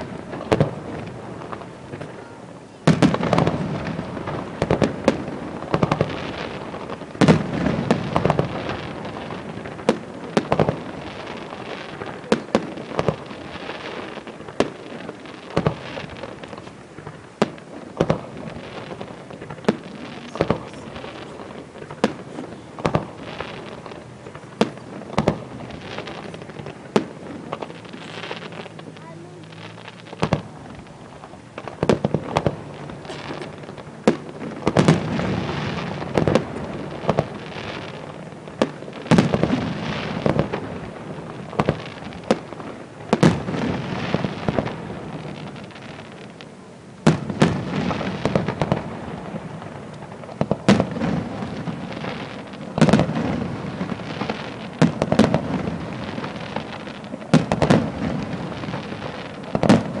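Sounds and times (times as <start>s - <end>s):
firework crackling: 0.0s - 60.0s
firework shells bursting: 0.0s - 60.0s.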